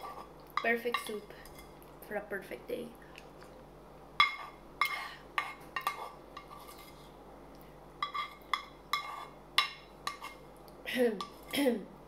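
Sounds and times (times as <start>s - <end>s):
spoon scraping a metal pan: 4.2s - 7.2s, 8.0s - 10.4s.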